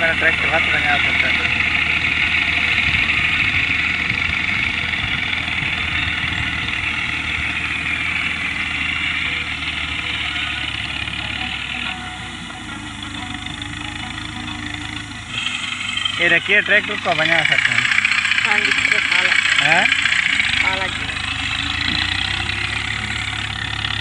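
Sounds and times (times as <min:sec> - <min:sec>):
tractor diesel engine running: 0:00.0 - 0:24.0.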